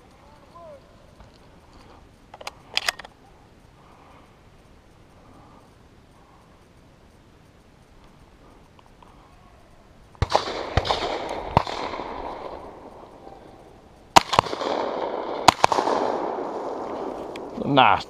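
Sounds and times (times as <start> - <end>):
shotgun blasts with echo: 10.2 - 12.9, 14.1 - 17.4.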